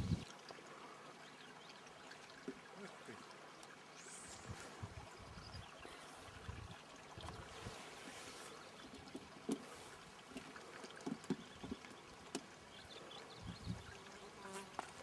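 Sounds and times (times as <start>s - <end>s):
faint flowing water: 0.0s - 15.0s
insect buzzing: 13.6s - 15.0s.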